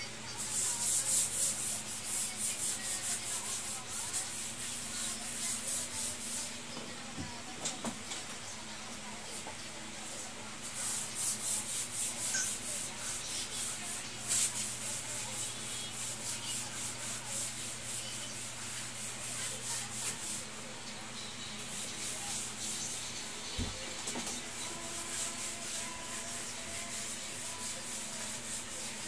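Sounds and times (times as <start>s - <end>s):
wet cloth scrubbing a floor: 0.4s - 6.6s, 10.6s - 20.5s, 24.7s - 29.0s.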